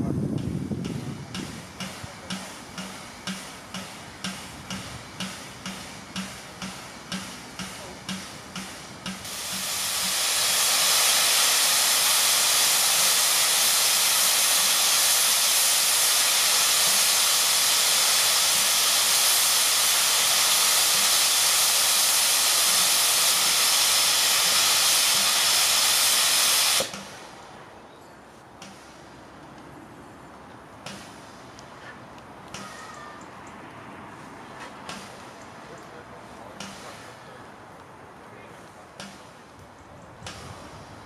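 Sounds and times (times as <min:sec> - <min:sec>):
steam locomotive blowing off steam: 0:00.1 - 0:27.7, 0:40.2 - 0:41.0.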